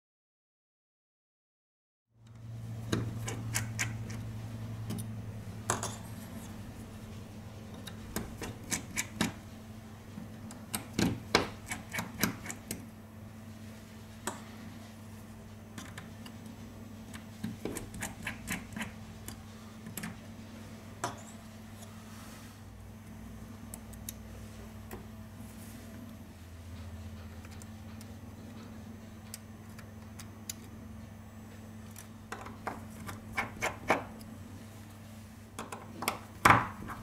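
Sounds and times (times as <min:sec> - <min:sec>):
steady low hum: 0:02.2 - 0:37.0.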